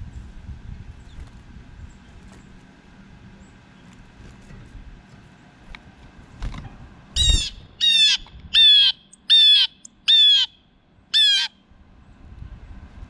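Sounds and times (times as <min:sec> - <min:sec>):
blue jay calling: 0:07.1 - 0:11.6.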